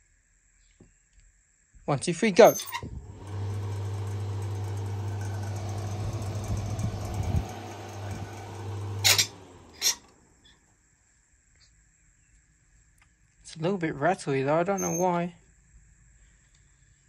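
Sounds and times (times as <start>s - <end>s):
fan motor electrical hum: 2.4s - 10.5s.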